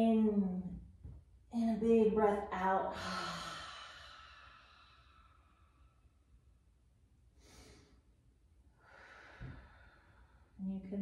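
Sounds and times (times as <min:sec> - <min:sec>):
person breathing softly: 0:02.9 - 0:06.2, 0:07.4 - 0:08.1, 0:08.7 - 0:10.6.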